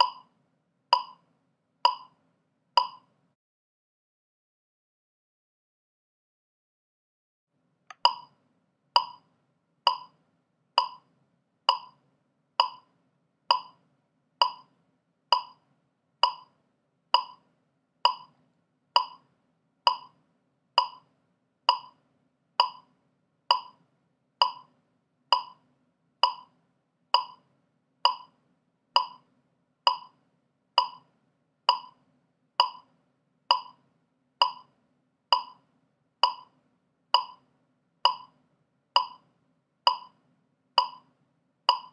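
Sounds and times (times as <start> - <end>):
metronome clicking: 0.0 - 0.3, 1.0 - 1.2, 1.9 - 2.2, 2.8 - 3.1, 7.9 - 8.3, 9.0 - 9.3, 9.9 - 10.2, 10.8 - 11.1, 11.7 - 12.0, 12.6 - 12.9, 13.5 - 13.8, 14.4 - 14.7, 15.3 - 15.6, 16.2 - 16.5, 17.2 - 17.4, 18.1 - 18.4, 19.0 - 19.2, 19.9 - 20.2, 20.8 - 21.1, 21.7 - 22.0, 22.6 - 22.9, 23.5 - 23.8, 24.4 - 24.7, 25.3 - 25.6, 26.2 - 26.5, 27.2 - 27.4, 28.0 - 28.3, 29.0 - 29.3, 29.9 - 30.2, 30.8 - 31.1, 31.7 - 32.0, 32.6 - 32.9, 33.5 - 33.8, 34.4 - 34.7, 35.3 - 35.6, 36.2 - 36.5, 37.2 - 37.4, 38.1 - 38.4, 39.0 - 39.3, 39.9 - 40.2, 40.8 - 41.1.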